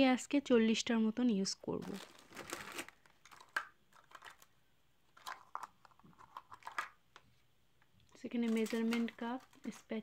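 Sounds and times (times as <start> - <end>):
plastic utensils clicking: 5.2 - 7.0, 8.2 - 9.9.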